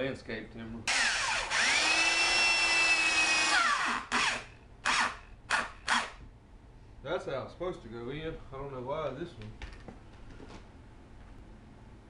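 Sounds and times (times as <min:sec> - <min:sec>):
electric drill whining: 0:00.9 - 0:06.2.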